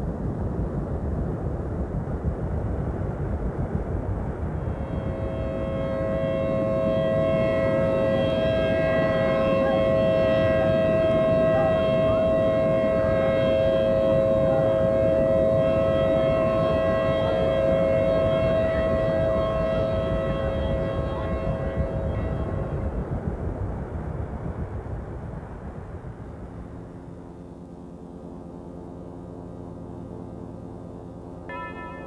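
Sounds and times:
two-tone warning siren: 4.5 - 23.2, 31.5 - 32.0.

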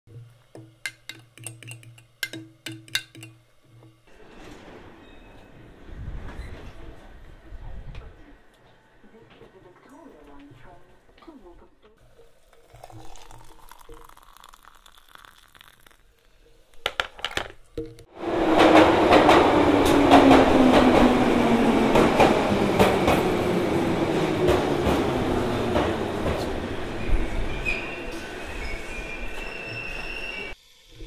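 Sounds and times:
underground train rattling: 18.1 - 30.6.

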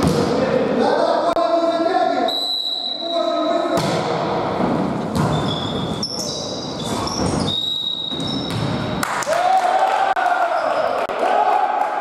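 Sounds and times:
sneakers squeaking on court floor: 4.6 - 9.0.

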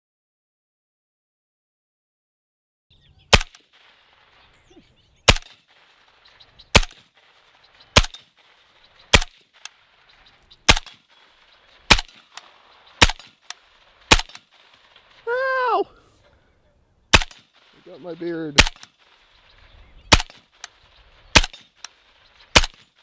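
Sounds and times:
suppressed pistol shots: 3.3 - 4.4, 5.2 - 15.2, 17.1 - 17.8, 18.6 - 23.0.

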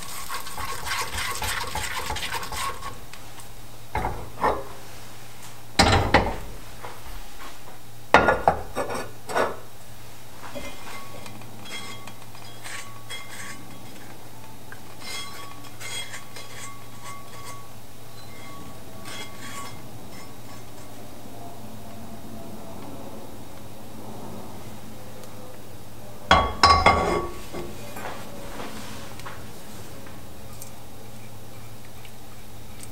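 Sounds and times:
spatula scraping baking pan: 0.0 - 3.0, 10.6 - 14.2, 14.9 - 20.9
metal cookware knocking on grates: 26.3 - 27.4.

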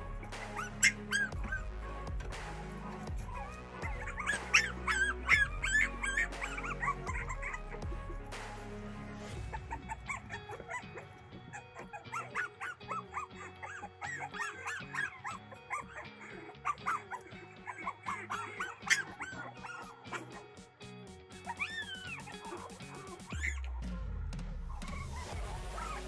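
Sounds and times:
background music: 0.0 - 26.0
puppies whimpering: 0.1 - 8.2, 9.4 - 20.5, 21.4 - 23.9, 24.7 - 26.0.

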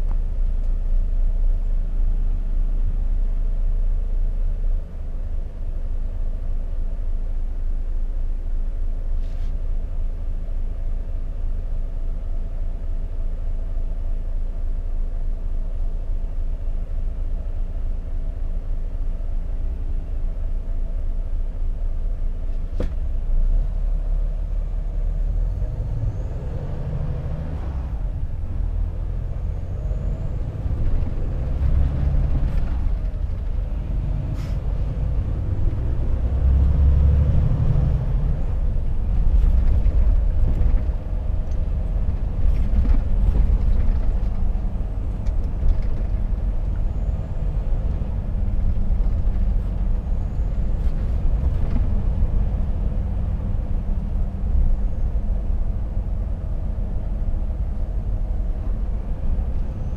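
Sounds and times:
truck diesel engine rumble: 0.0 - 59.9.

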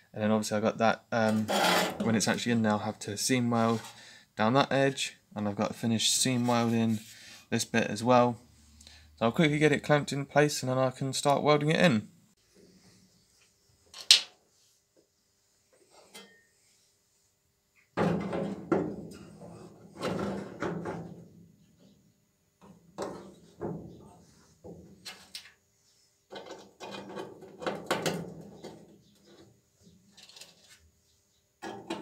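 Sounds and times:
thin metal knocking and rattling: 22.6 - 25.4, 26.3 - 29.5, 31.6 - 32.0.

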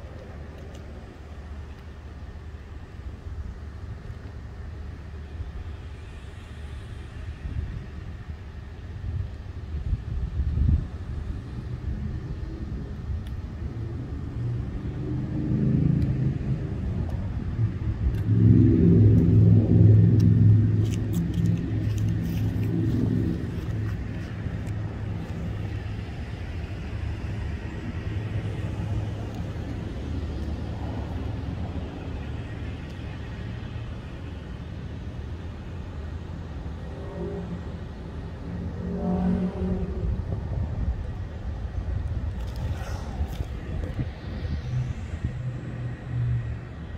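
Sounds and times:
vehicle engine passing: 36.7 - 41.2.

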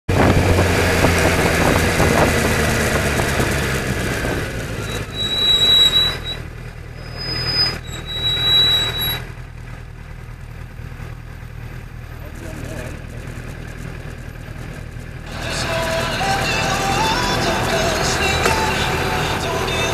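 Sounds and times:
low idling hum: 0.1 - 5.2
brakes squealing: 0.1 - 19.9
car road and engine noise: 0.1 - 19.9.

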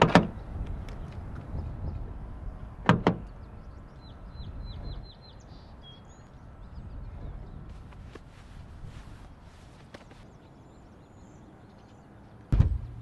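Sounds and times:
low outdoor rumble: 12.4 - 13.0.

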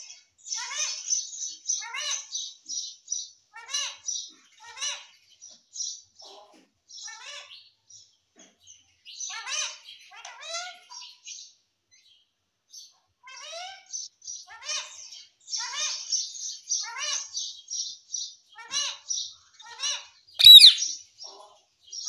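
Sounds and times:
parakeet calling and chattering: 20.4 - 20.9.

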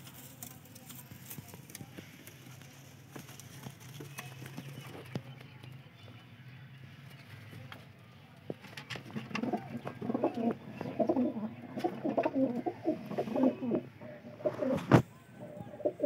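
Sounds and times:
pigeons cooing: 8.9 - 16.0.

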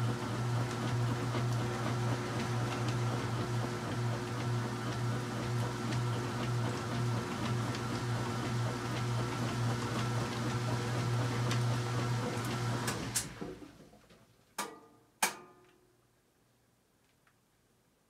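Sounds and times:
washing machine humming: 0.0 - 14.0.

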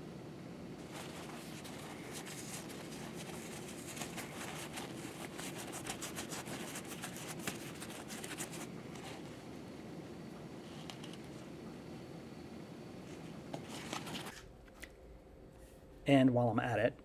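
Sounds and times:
paper towel rubbing metal: 0.8 - 9.3.

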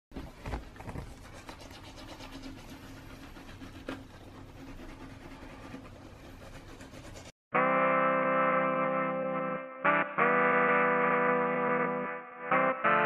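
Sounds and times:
toothbrush scrubbing teeth: 1.2 - 7.3.

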